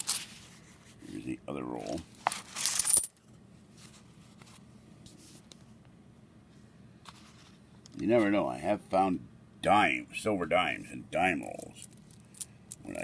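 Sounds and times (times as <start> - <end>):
coins clinking: 2.4 - 3.1.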